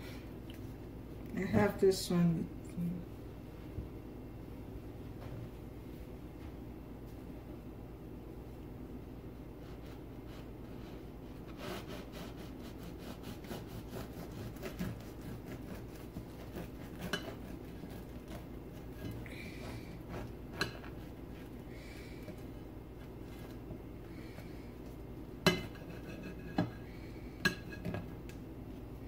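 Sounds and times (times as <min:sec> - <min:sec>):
knife sawing through crusty bread: 0:09.6 - 0:21.6.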